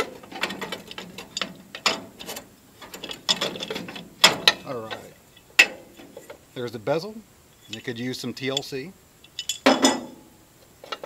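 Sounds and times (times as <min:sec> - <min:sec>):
metal clicks knocks and scrapes: 0:00.0 - 0:06.4.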